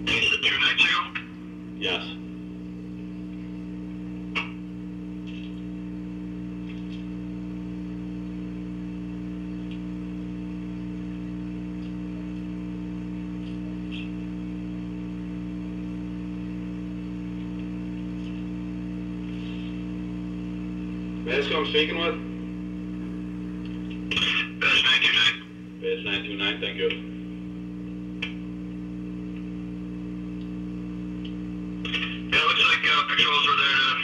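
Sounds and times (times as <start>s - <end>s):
phone line electrical hum: 0.0s - 34.0s.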